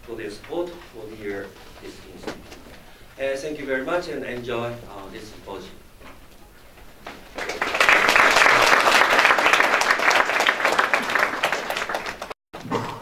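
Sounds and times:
audience applauding: 0:07.2 - 0:12.4.

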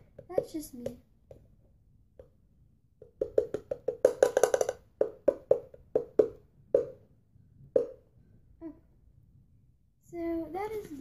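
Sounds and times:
palm slapping canister: 0:03.0 - 0:07.0, 0:07.7 - 0:08.0.

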